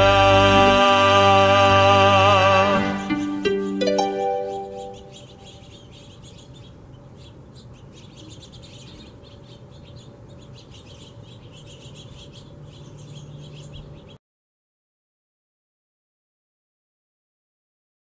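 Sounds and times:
finches chirping: 0:02.7 - 0:14.2.

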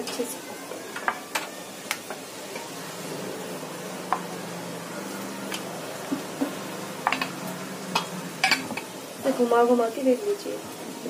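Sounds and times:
low hum: 0:02.7 - 0:09.2.

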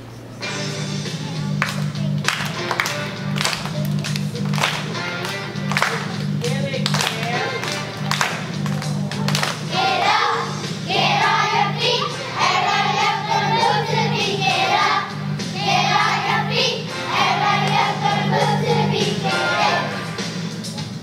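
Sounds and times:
repeating accompaniment with beat: 0:00.5 - 0:21.0
children's choir singing: 0:07.3 - 0:21.0.

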